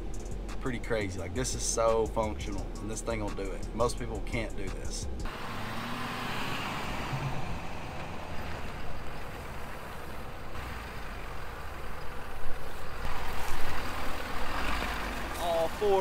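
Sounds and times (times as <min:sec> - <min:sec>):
pickup diesel engine: 0:00.0 - 0:16.0
road rumble: 0:00.0 - 0:16.0.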